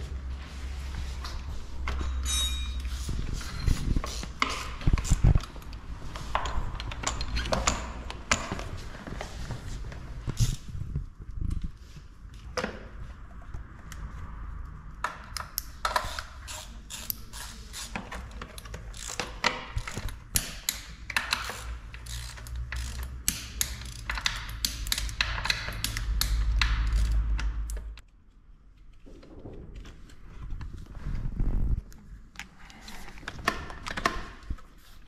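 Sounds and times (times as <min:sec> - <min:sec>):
ratchet wrench clicking: 0:15.3 - 0:27.9.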